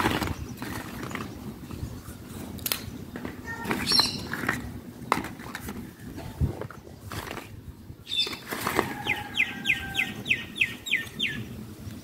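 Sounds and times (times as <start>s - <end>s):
bird chirping: 3.8s - 4.3s, 8.0s - 11.6s.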